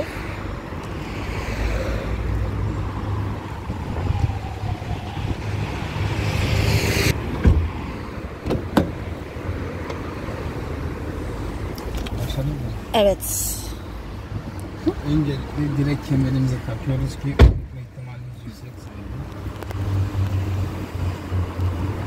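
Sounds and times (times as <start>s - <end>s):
traffic rumble: 0.0s - 22.0s
car door shutting: 7.3s - 7.8s, 8.4s - 9.0s, 17.3s - 17.7s.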